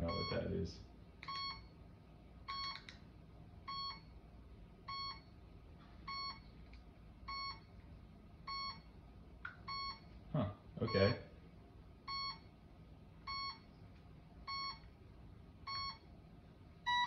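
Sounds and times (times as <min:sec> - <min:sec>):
speed controller multi-tone beeps: 0:00.1 - 0:00.4, 0:12.1 - 0:12.4.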